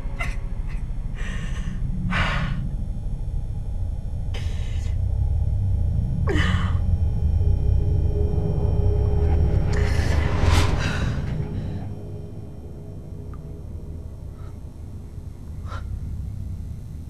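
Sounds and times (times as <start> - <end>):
low steady rumble: 0.0 - 17.0
woman gasping and breathing hard: 0.2 - 2.6, 4.4 - 5.0, 6.3 - 6.8.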